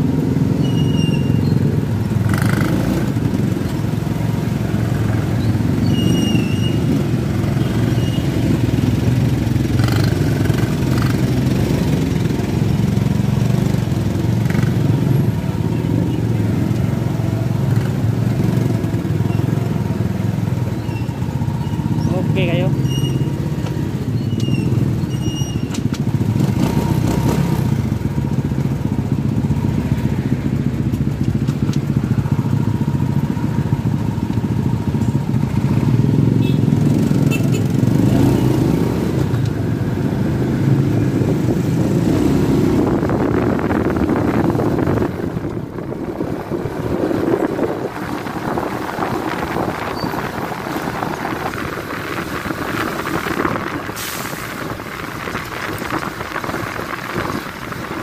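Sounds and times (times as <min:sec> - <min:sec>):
motorcycle engine running: 0:00.0 - 0:53.8
wind rush: 0:38.8 - 0:58.0.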